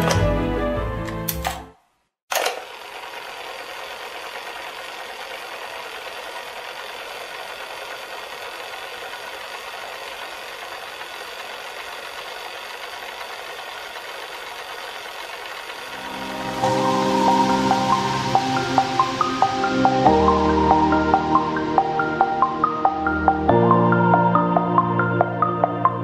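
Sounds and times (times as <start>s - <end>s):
fast mechanical whirring: 2.3s - 19.9s.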